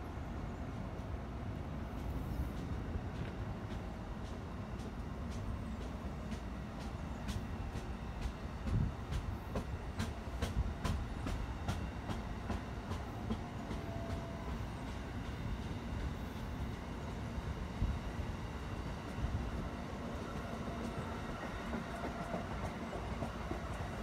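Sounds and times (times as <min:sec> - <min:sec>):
train cars rumbling past: 0:00.0 - 0:24.0.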